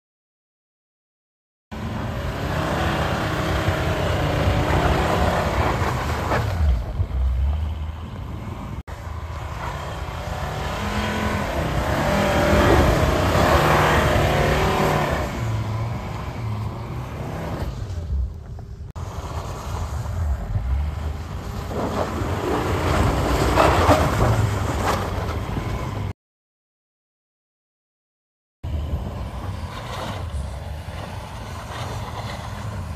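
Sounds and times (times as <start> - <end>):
car engine revving: 1.8 - 8.1, 8.9 - 18.0.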